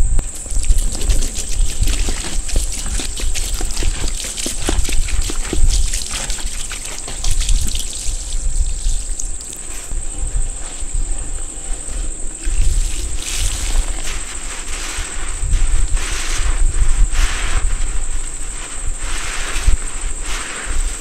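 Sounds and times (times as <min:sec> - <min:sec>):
crickets chirping: 0:00.0 - 0:21.0
water pouring from a sponge into a bowl: 0:00.3 - 0:09.7, 0:12.4 - 0:15.1.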